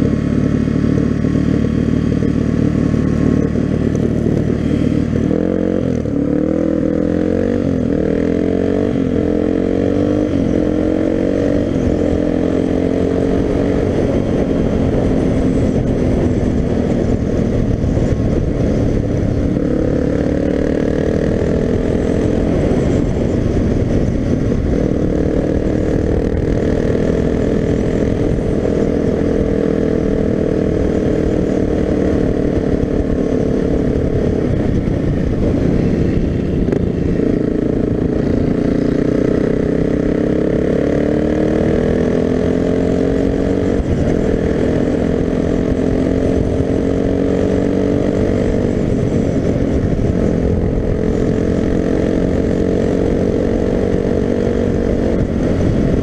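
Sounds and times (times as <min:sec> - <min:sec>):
motorcycle engine running: 0:00.0 - 0:56.0
wind rush: 0:00.0 - 0:56.0.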